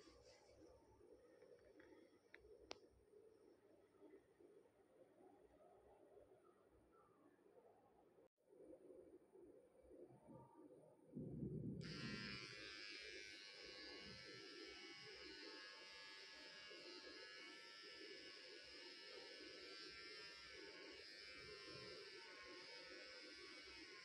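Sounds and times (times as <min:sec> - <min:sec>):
hair clipper buzzing: 0:11.8 - 0:24.0.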